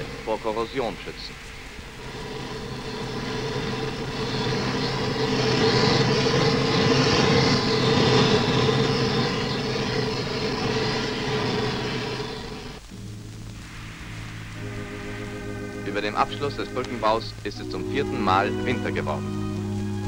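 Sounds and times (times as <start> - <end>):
gas burner flame rushing: 0.0 - 17.5
music: 12.8 - 20.0.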